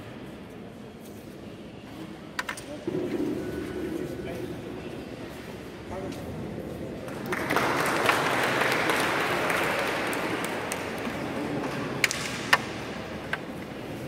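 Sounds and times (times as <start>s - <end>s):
spectators clapping: 7.1s - 12.6s.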